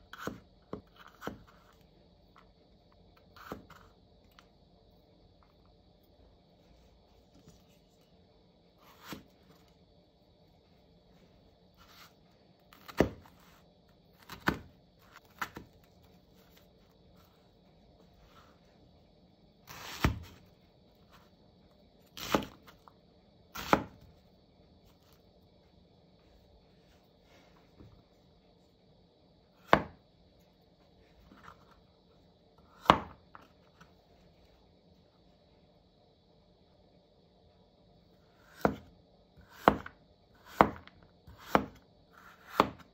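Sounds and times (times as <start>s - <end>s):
knife chopping carrot on board: 0.1s - 1.7s, 3.4s - 3.9s, 14.2s - 15.7s, 22.2s - 22.6s, 23.5s - 24.0s, 29.6s - 30.0s, 32.8s - 33.5s, 38.5s - 42.9s.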